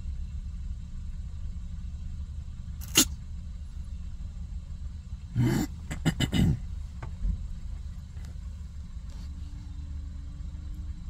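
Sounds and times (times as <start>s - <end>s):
car engine rumble and road noise: 0.0s - 11.0s
kitten sneezing: 2.8s - 3.2s, 5.4s - 6.6s.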